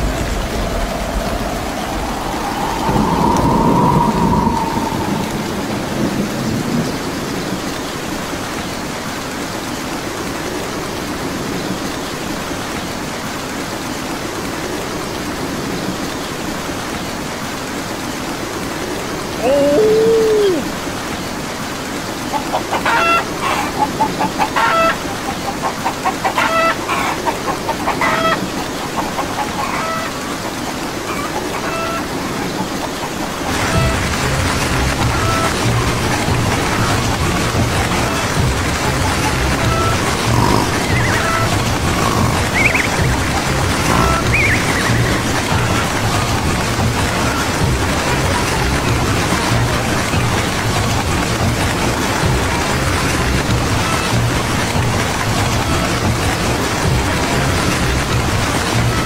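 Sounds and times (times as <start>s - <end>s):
low thunder rumble: 0.0s - 8.0s
steady rain hissing: 0.0s - 59.0s
rapid chicken clucks: 22.3s - 33.9s, 37.1s - 46.2s.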